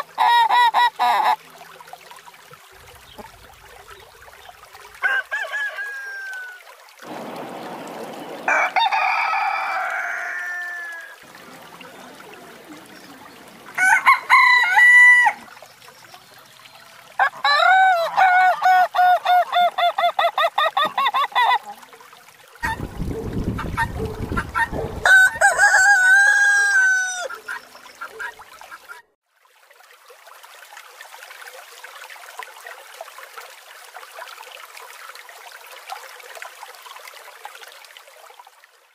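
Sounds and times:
roosters crowing: 5.0 - 11.2, 13.8 - 15.4, 22.6 - 27.4
faint steady hiss: 6.8 - 13.8.

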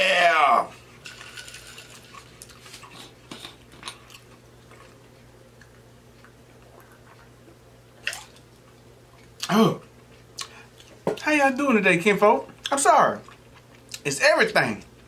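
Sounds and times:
wet chewing: 1.2 - 11.0.

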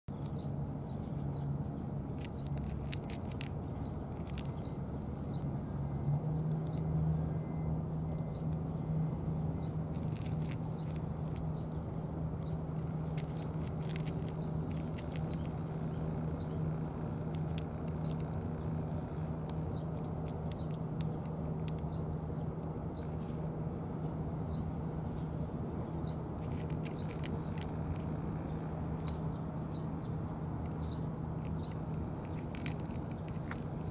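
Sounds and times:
low background hum: 0.1 - 33.9
cat crunching dry kibble: 2.1 - 4.7, 9.8 - 11.6, 12.8 - 21.9, 26.4 - 28.2, 31.4 - 33.9.

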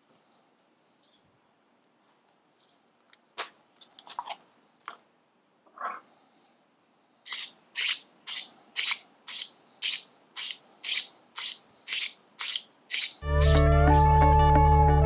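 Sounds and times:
knife scraping on sharpening rod: 7.3 - 13.6.

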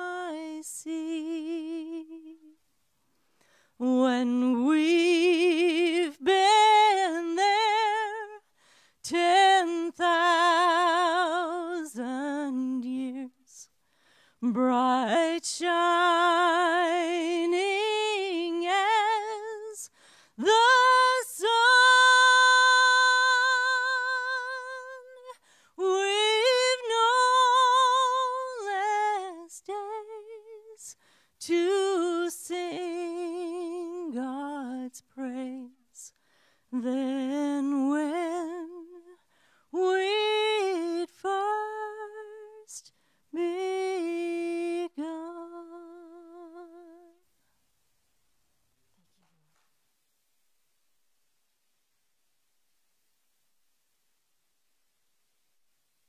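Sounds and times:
woman singing unaccompanied: 0.0 - 2.6, 3.8 - 13.7, 14.4 - 36.1, 36.7 - 47.2.

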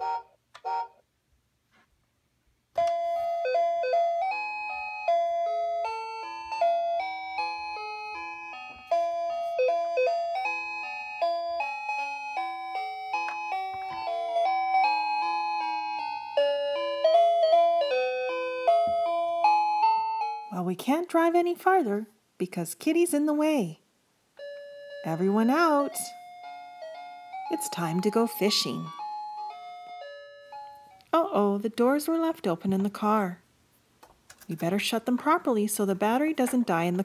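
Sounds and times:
toy electronic jingle: 2.8 - 20.5, 24.4 - 31.0.

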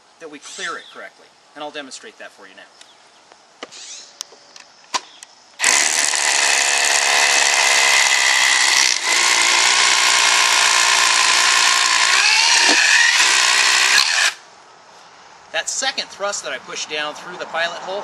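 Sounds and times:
drill boring into pavement: 5.6 - 14.4.

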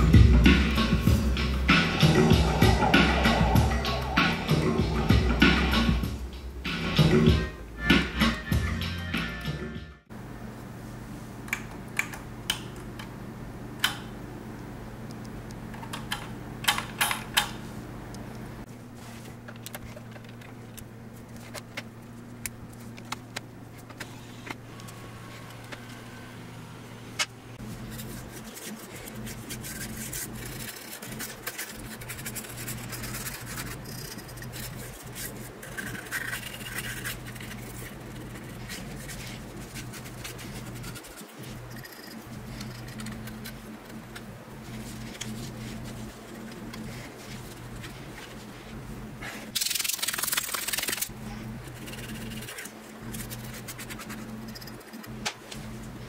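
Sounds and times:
steady low hum: 0.0 - 9.0, 10.0 - 56.0.

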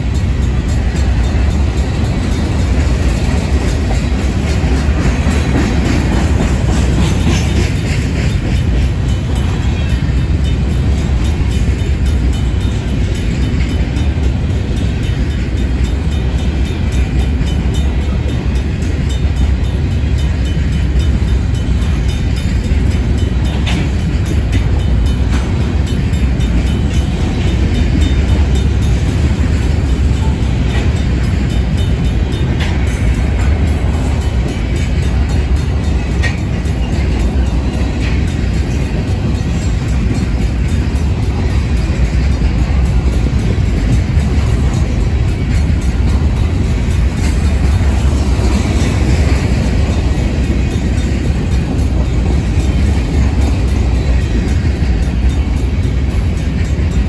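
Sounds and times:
crossing bell ringing: 0.0 - 57.0
train wheels rumbling on rails: 0.0 - 57.0.

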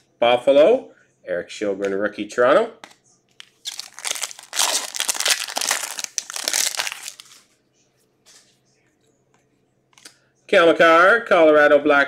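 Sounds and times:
foil wrapper crinkling: 3.6 - 7.4.

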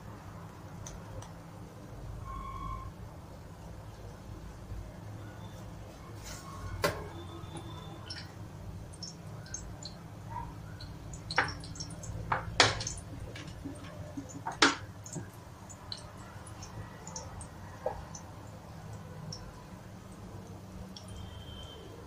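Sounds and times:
hot oil crackling and popping: 6.8 - 21.8.

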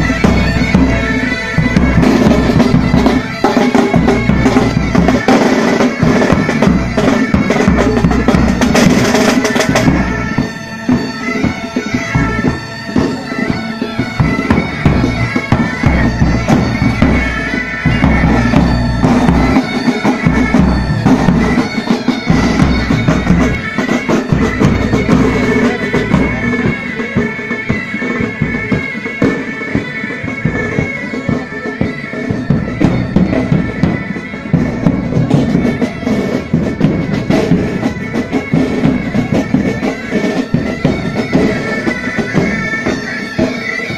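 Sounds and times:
bagpipes playing: 0.0 - 43.9
marching side drums: 0.0 - 43.9.

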